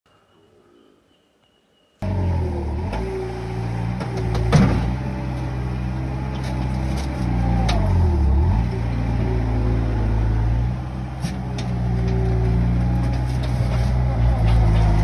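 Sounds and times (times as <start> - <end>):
diesel engine under load: 2.0 - 15.0
loud clunk: 4.0 - 5.1.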